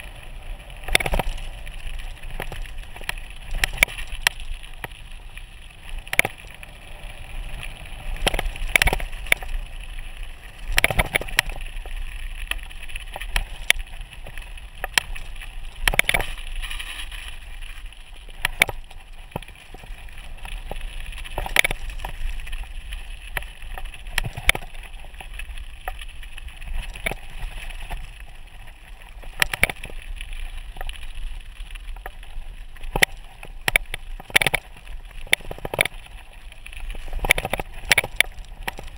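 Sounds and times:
bike tyres crunching on gravel: 0.0s - 38.9s
bike knocking and rattling: 0.7s - 5.2s, 8.2s - 16.4s, 31.9s - 36.2s, 36.9s - 38.9s.

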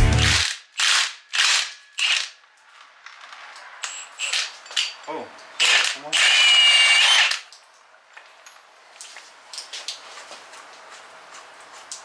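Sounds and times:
impact wrench running: 0.0s - 2.3s.

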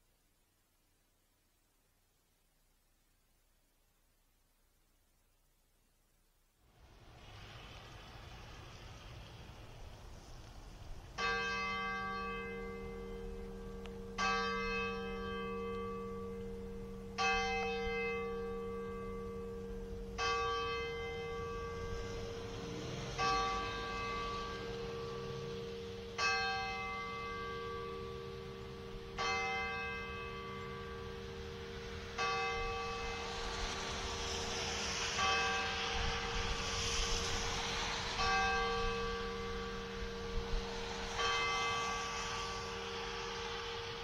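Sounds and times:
tower bell tolling: 11.2s - 44.0s.

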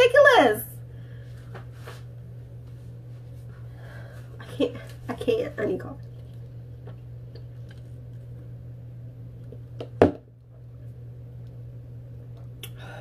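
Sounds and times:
steady low hum: 0.0s - 13.0s
cup set down on table: 9.8s - 10.2s.

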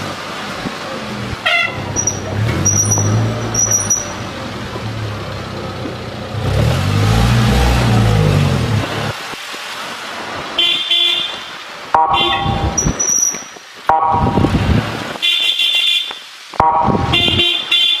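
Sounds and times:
vehicle horn beeps: 10.6s - 13.3s, 15.2s - 18.0s.

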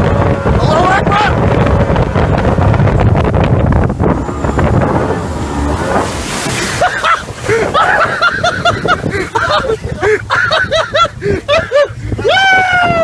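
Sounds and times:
rush of water flooding deck: 0.0s - 13.0s
speedboat running fast: 0.0s - 13.0s
wind on microphone: 0.0s - 13.0s.

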